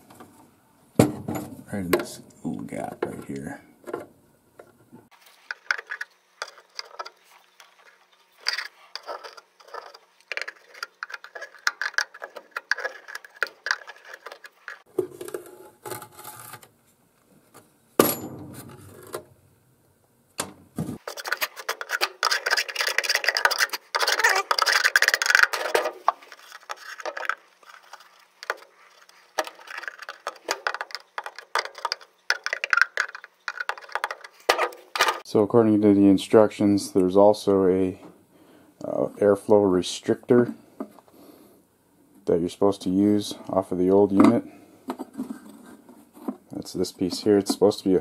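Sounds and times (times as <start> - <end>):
screwdriver scraping and clicking: 8.4 - 14.8.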